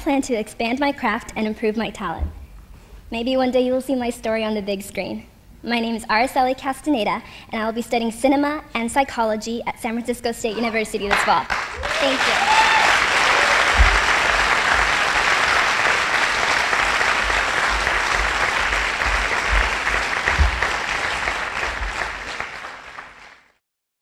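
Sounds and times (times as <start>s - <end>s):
audience applauding: 11.1s - 23.6s.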